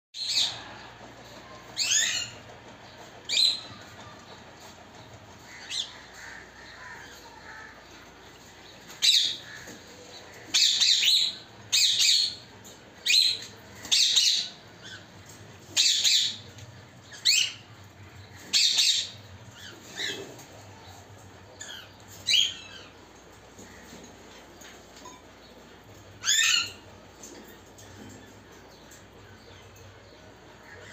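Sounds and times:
parrots squawking: 0:26.2 - 0:26.8.

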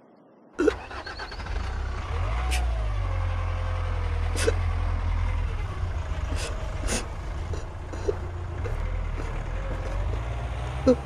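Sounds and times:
sharp gasping breaths: 0:06.3 - 0:08.8.

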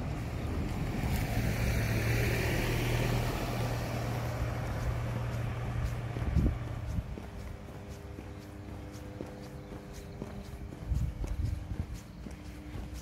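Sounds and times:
low engine hum: 0:00.0 - 0:13.0
pickup truck driving past: 0:00.5 - 0:06.1.

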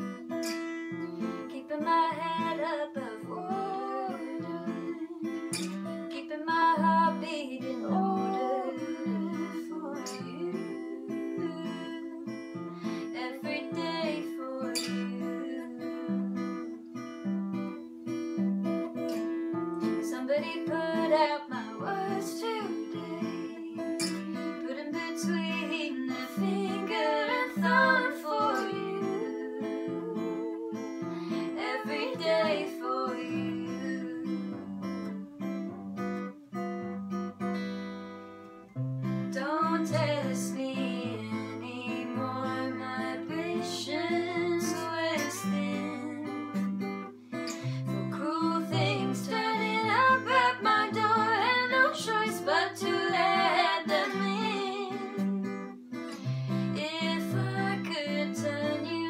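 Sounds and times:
acoustic guitar strumming: 0:00.0 - 0:59.0
wordless singing: 0:01.5 - 0:16.3, 0:20.0 - 0:35.8, 0:47.5 - 0:55.3.

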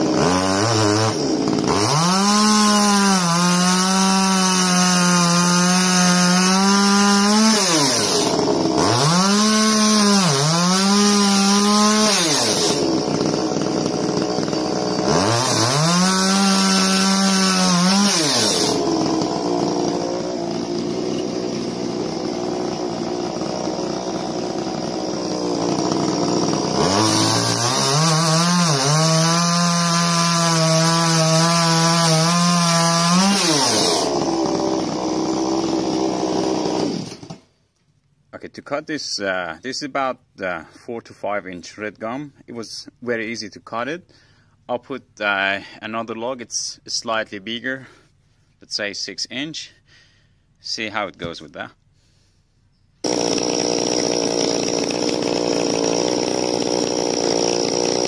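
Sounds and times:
chainsaw revving and idling: 0:00.0 - 0:37.5, 0:53.0 - 0:58.0.

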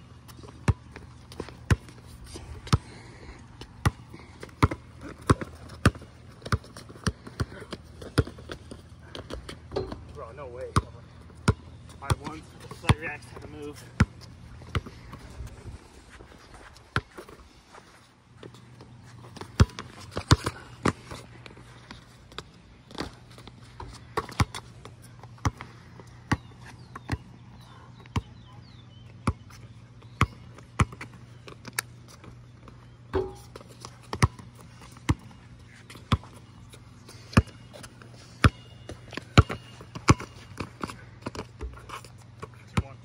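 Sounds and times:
basketball bouncing on concrete: 0:00.4 - 0:02.0, 0:03.6 - 0:15.3, 0:23.8 - 0:27.3, 0:29.2 - 0:31.2, 0:33.1 - 0:35.3, 0:38.4 - 0:41.8.

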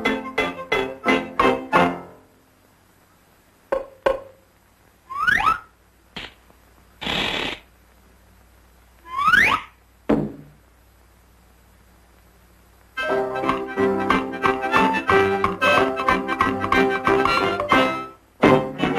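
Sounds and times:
rising whistle: 0:05.1 - 0:05.7
burst of hiss: 0:07.0 - 0:07.7.

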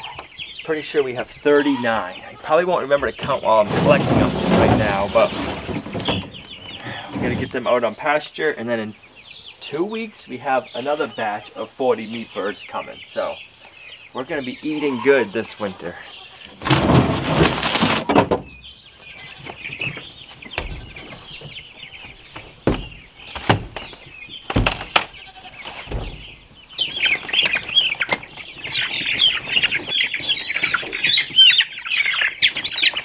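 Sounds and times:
chicks peeping: 0:00.0 - 0:33.0
plastic crates clattering: 0:02.9 - 0:07.6, 0:16.5 - 0:18.6, 0:19.3 - 0:31.6
knocks and thumps: 0:03.2 - 0:07.5, 0:16.6 - 0:18.6, 0:19.7 - 0:25.1, 0:25.8 - 0:26.4.

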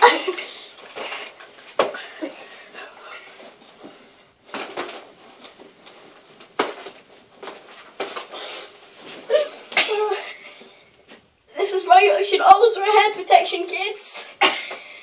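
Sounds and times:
rustling and shuffling: 0:00.3 - 0:09.8, 0:10.4 - 0:12.1.

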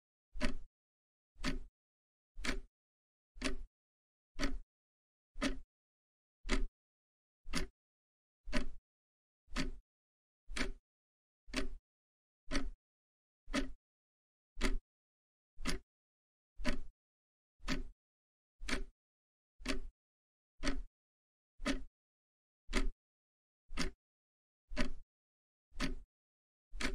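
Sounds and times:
timer ticking: 0:00.4 - 0:00.7, 0:01.4 - 0:01.7, 0:02.4 - 0:02.7, 0:03.4 - 0:03.7, 0:04.4 - 0:04.6, 0:05.4 - 0:05.6, 0:06.4 - 0:06.7, 0:07.5 - 0:07.7, 0:08.5 - 0:08.8, 0:09.5 - 0:09.8, 0:10.5 - 0:10.8, 0:11.5 - 0:11.8, 0:12.5 - 0:12.8, 0:13.5 - 0:13.8, 0:14.6 - 0:14.8, 0:15.6 - 0:15.8, 0:16.6 - 0:16.9, 0:17.6 - 0:17.9, 0:18.6 - 0:18.9, 0:19.6 - 0:19.9, 0:20.6 - 0:20.9, 0:21.6 - 0:21.9, 0:22.7 - 0:23.0, 0:23.7 - 0:24.0, 0:24.7 - 0:25.0, 0:25.8 - 0:26.0.

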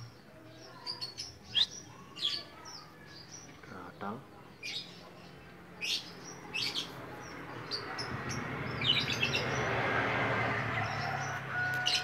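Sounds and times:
steady rushing noise: 0:07.3 - 0:11.5.

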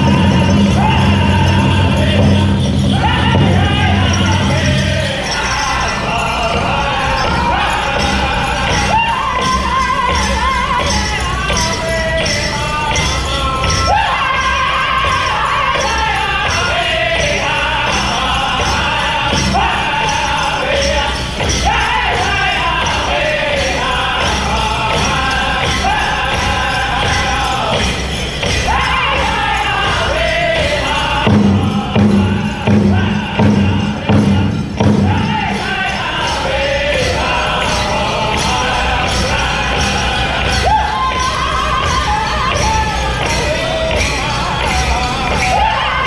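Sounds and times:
big drum strikes: 0:00.0 - 0:11.6, 0:24.2 - 0:40.6
leg bells jingling: 0:00.0 - 0:46.0
men singing in unison: 0:00.0 - 0:46.0.

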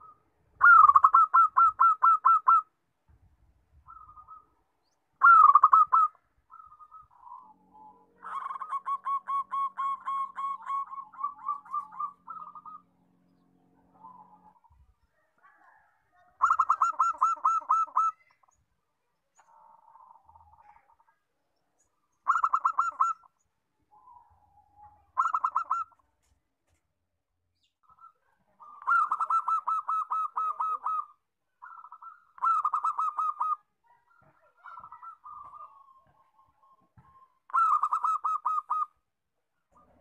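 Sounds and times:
dove cooing: 0:00.0 - 0:02.7, 0:03.9 - 0:04.6, 0:05.2 - 0:13.0, 0:13.8 - 0:18.6, 0:22.2 - 0:26.0, 0:27.8 - 0:39.0.

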